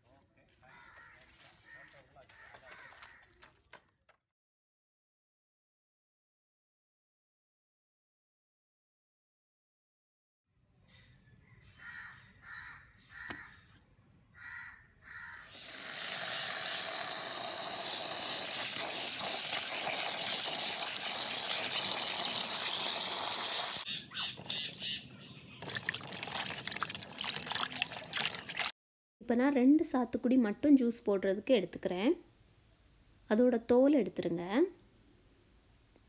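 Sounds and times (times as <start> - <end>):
tap water gushing into bucket: 15.5 - 23.8, 25.6 - 28.7
bird calling: 23.8 - 25.8
hands splashing fruit in water: 25.6 - 28.7.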